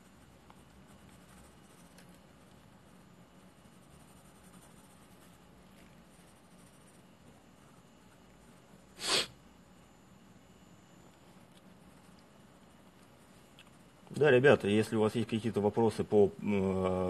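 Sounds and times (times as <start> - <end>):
pencil scratching on paper: 0.0 - 9.1.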